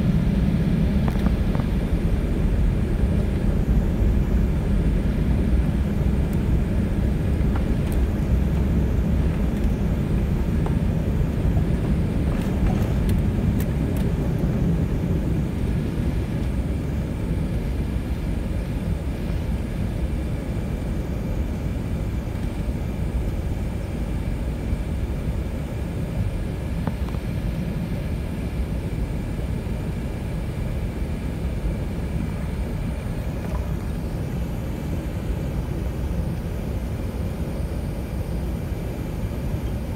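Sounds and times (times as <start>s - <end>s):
faint engine whine: 0.0s - 39.9s
jet engines rumbling: 0.0s - 39.9s.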